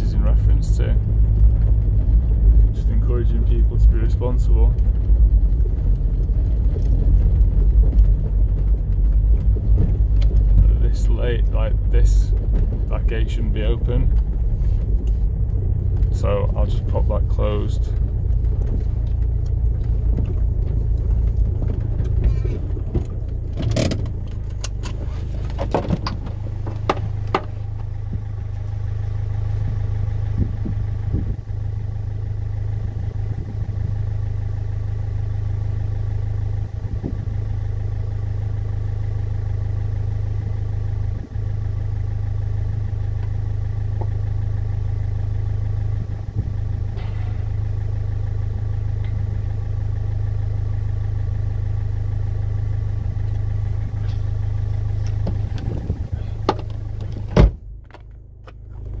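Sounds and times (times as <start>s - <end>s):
diesel engine idling: 0.0s - 59.0s
sharp clicks and knocks: 17.9s - 28.6s, 56.4s - 59.0s.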